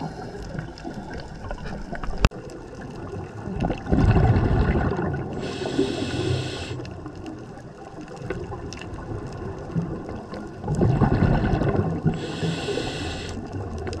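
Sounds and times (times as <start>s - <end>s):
rumble of exhaled bubbles: 0.0s - 14.0s
hissing regulator inhale: 5.3s - 6.9s, 12.1s - 13.6s.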